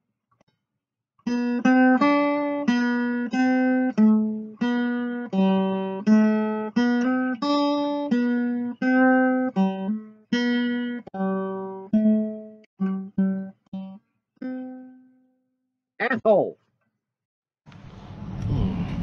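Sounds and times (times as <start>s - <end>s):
plucked acoustic guitar melody: 1.2s - 15.2s.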